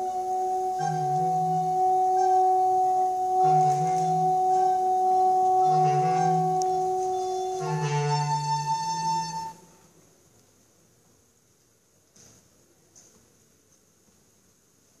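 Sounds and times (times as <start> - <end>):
held woodwind tones: 0.0 - 10.0.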